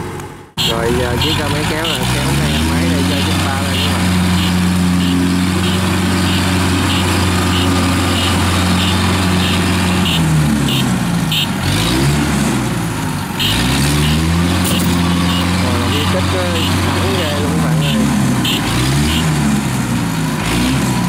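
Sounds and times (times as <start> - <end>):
tractor engines running: 0.0 - 21.0.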